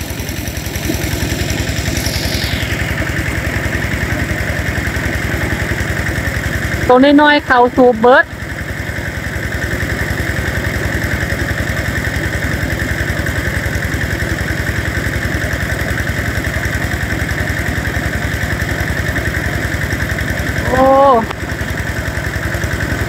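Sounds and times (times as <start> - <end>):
small pump engine chugging: 0.0 - 23.0.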